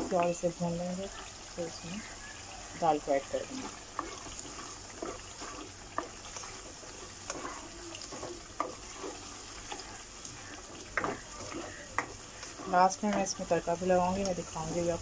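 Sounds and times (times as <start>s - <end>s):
low sizzle: 0.0s - 15.0s
spoon scraping a pan: 3.1s - 15.0s.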